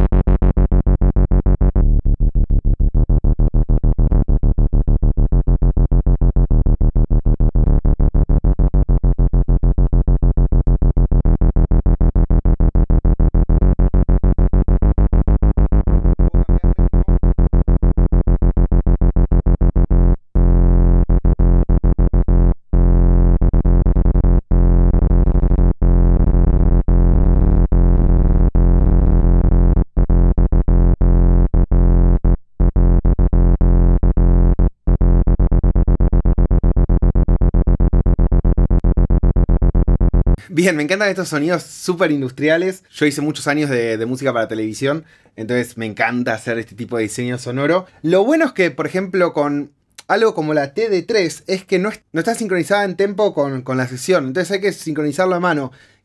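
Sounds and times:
synthesizer bass line: 0.0s - 44.8s.

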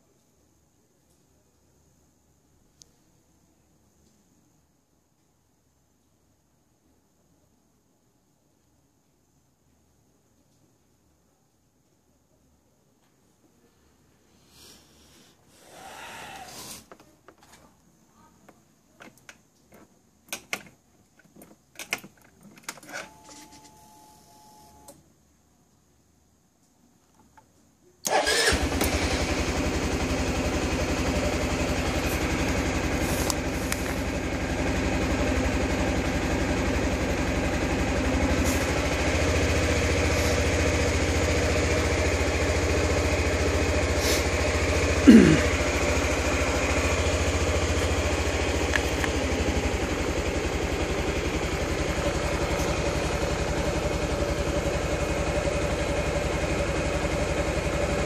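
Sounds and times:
scooter engine starting and idling: 28.0s - 58.0s.

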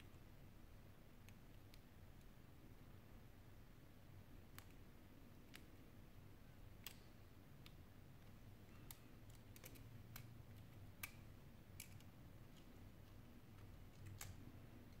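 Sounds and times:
small clicks of phone parts: 6.8s - 14.5s.

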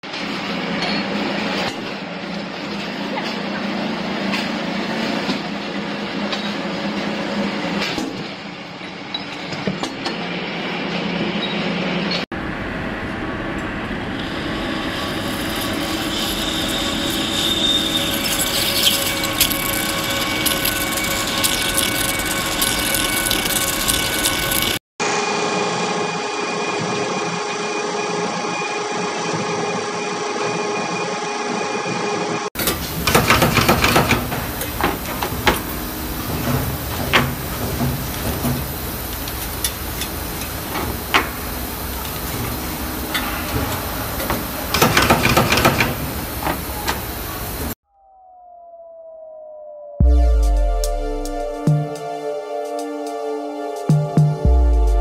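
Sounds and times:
machinery high whine: 11.3s - 55.0s
drill press boring metal: 14.2s - 24.8s, 32.6s - 47.5s.

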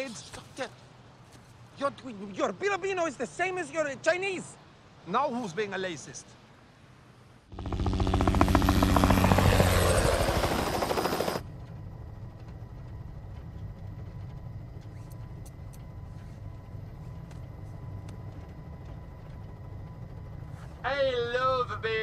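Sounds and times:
helicopter rotor chopping: 7.5s - 16.0s
helicopter cabin drone: 7.5s - 22.0s.

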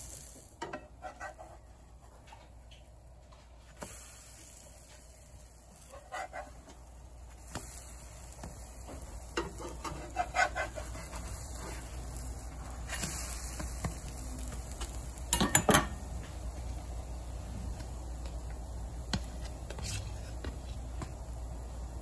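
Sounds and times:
steady low hum: 0.0s - 22.0s
metal spatula clacking on griddle: 15.3s - 16.0s.

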